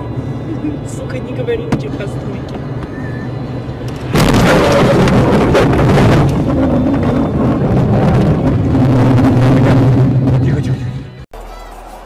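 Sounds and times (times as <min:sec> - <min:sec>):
car engine droning: 0:00.0 - 0:11.5
wind and blowing snow rushing: 0:04.0 - 0:10.4.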